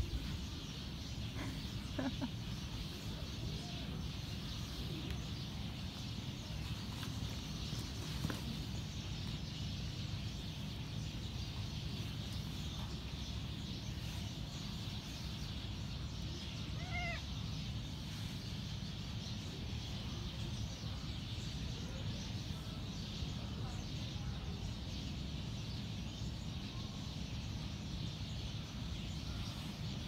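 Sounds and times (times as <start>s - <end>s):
cat mewing: 16.6s - 17.3s.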